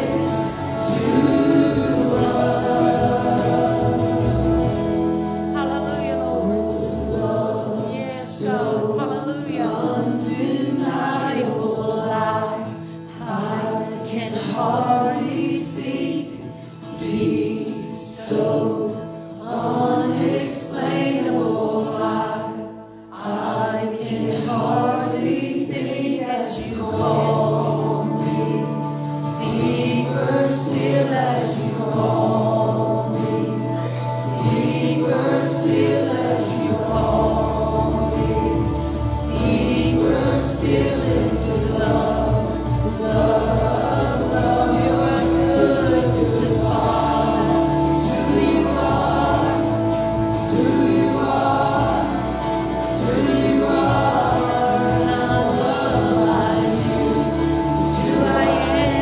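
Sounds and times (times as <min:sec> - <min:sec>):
sustained instrumental chords: 0:00.0 - 0:11.5, 0:26.8 - 0:59.0
group singing worship song: 0:00.0 - 0:59.0.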